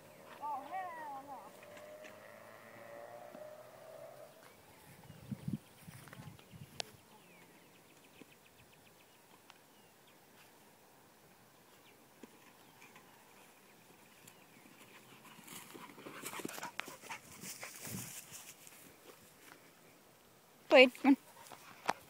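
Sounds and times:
grass rustling with clicks: 0.0s - 3.5s, 11.3s - 19.9s, 20.7s - 22.0s
faint outdoor background: 0.0s - 22.0s.

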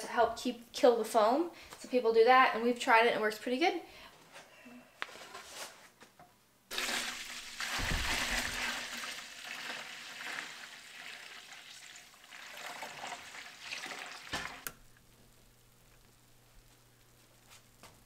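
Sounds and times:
syrup pouring into metal pot: 6.7s - 14.6s.

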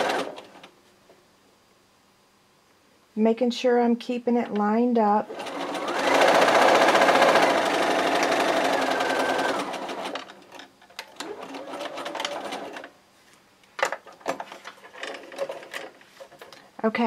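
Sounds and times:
sewing machine stitching: 0.0s - 0.6s, 5.2s - 12.9s.

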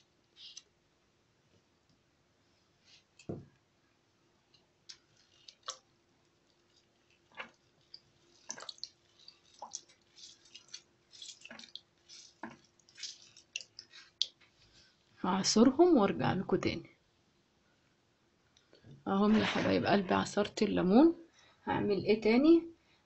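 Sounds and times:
juice dripping into a bowl: 4.5s - 15.2s
lemon squelching: 6.5s - 14.4s.

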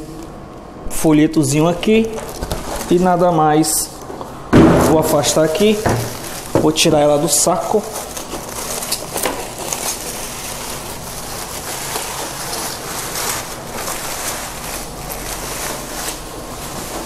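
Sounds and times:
plastic bag crinkling: 1.5s - 3.3s, 4.9s - 17.0s.

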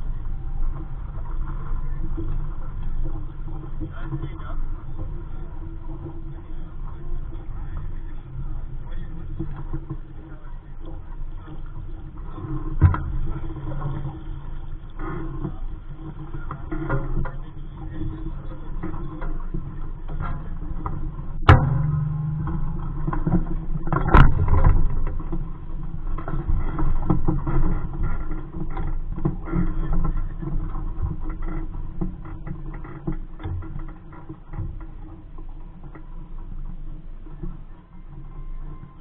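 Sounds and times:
water lapping against hull: 0.0s - 39.0s
sharp knocks on boat: 12.8s - 13.5s, 21.4s - 25.5s.

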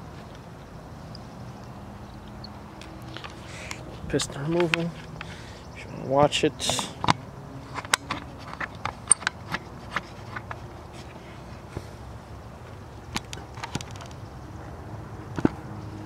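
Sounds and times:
outdoor background hiss: 0.0s - 16.0s
sharp clicks and light knocks: 1.1s - 5.4s, 13.1s - 14.3s.

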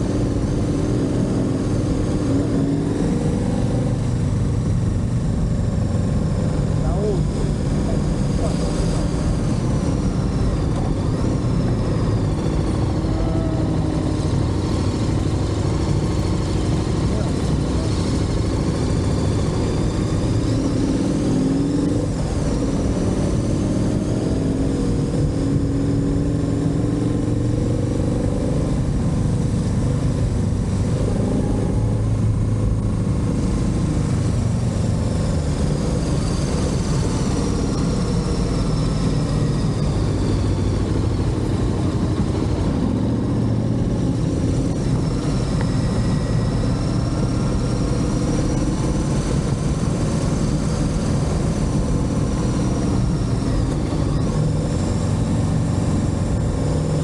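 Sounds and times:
motorcycle engine accelerating: 0.0s - 57.0s.

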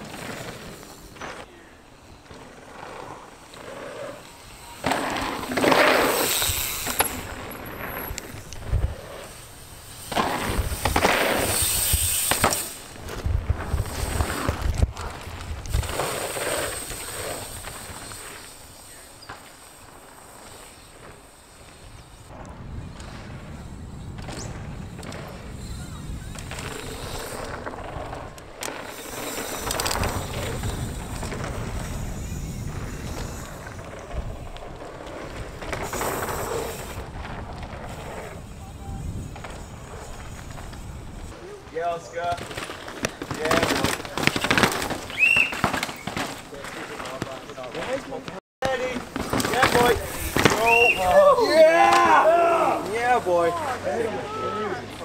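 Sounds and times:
bike tyres rushing over dirt: 0.0s - 55.0s
bike clicks and knocks: 10.0s - 18.6s, 24.1s - 32.1s, 42.2s - 51.0s
bike rattling and knocking: 24.1s - 51.0s.

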